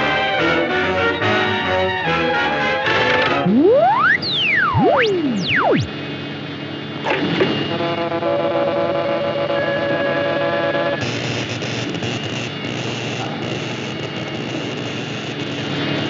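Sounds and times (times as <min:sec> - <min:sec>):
sweeping electronic tones: 0:02.8 - 0:06.0
sudden burst: 0:03.0 - 0:06.0.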